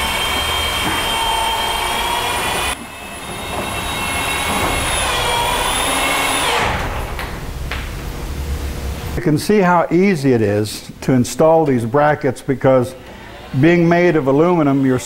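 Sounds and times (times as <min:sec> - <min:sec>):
electric drill whining: 0:00.0 - 0:07.2.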